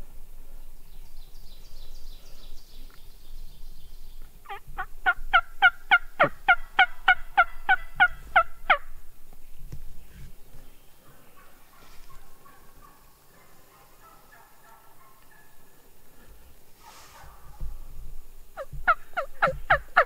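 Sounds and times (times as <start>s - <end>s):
turkey yelps: 4.5s - 8.9s, 11.4s - 15.6s, 18.6s - 20.0s.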